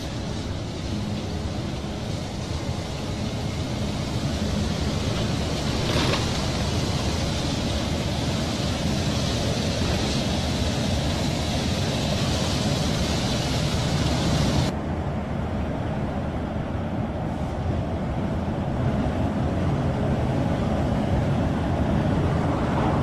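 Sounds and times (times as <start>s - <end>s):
tyre and wind noise: 0.0s - 14.8s
diesel truck engine running: 0.0s - 23.0s.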